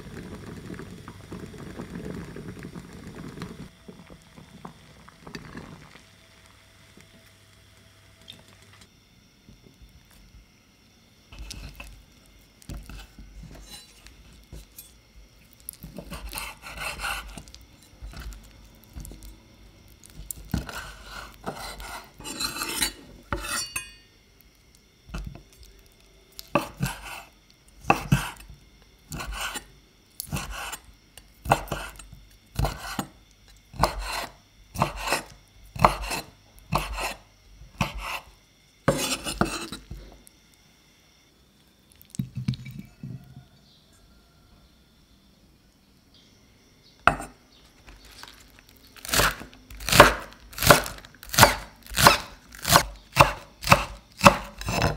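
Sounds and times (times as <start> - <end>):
knife chopping on wooden board: 20.5 - 23.8, 27.8 - 28.4, 31.5 - 32.0, 33.8 - 37.2, 37.8 - 38.2, 38.9 - 39.8, 47.1 - 47.3, 49.0 - 54.9.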